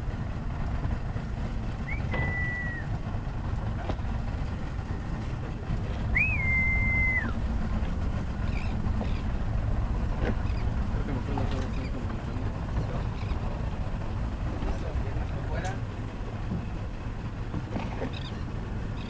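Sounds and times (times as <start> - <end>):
small boat engine rumble: 0.0 - 19.0
whistled tone: 1.8 - 2.9, 6.1 - 7.4.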